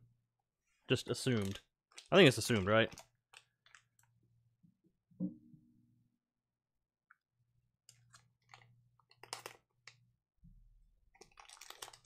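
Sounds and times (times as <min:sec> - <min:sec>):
plastic wrapper crinkling and tearing: 0:01.1 - 0:04.1, 0:07.9 - 0:10.0, 0:11.0 - 0:12.0.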